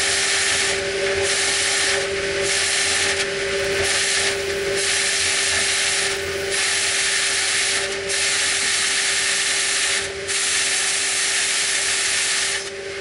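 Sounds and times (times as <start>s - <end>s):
machine drone: 2.6s - 8.0s
compressed air hose hissing in duct: 3.5s - 7.8s.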